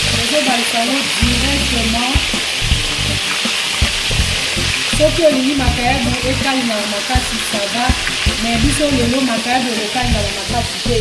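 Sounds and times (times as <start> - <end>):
fish sizzling in oil: 0.0 - 11.0
spatula knocking on a pan: 1.2 - 4.6, 7.2 - 9.0.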